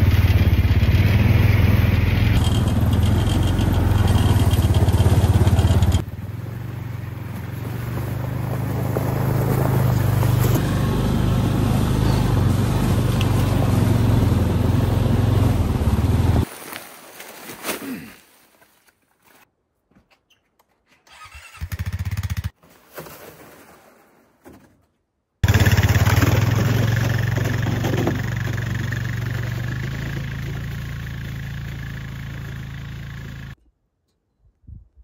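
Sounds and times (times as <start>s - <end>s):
quad engine idling: 0.0s - 7.2s, 10.0s - 16.4s, 25.4s - 33.6s
quad engine driving off: 0.0s - 16.5s, 25.4s - 33.6s.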